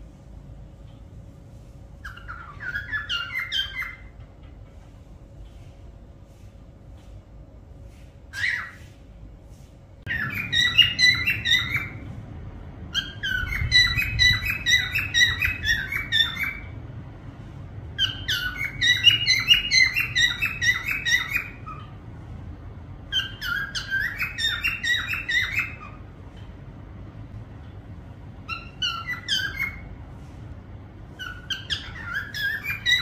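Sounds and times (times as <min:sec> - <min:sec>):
parrot whistling and chirping: 0:02.0 - 0:04.2, 0:08.3 - 0:08.9, 0:10.1 - 0:12.1, 0:12.9 - 0:16.8, 0:18.0 - 0:22.0, 0:23.1 - 0:26.1, 0:28.4 - 0:30.0, 0:31.1 - 0:33.0.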